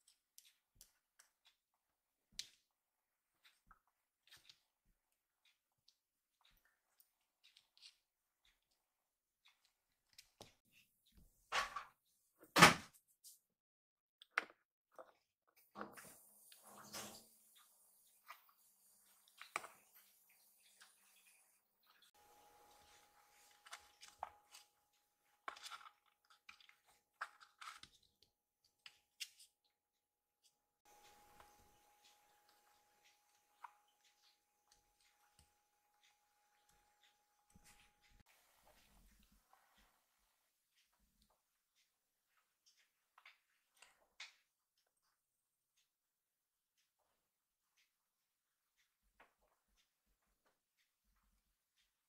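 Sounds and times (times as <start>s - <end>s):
faint room hum: 16.3s - 25.5s, 30.9s - 40.9s.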